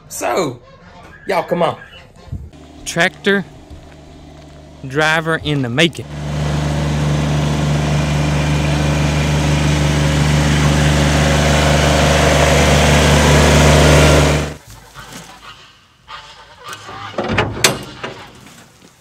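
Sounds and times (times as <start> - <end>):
tractor engine running: 2.6 - 14.6.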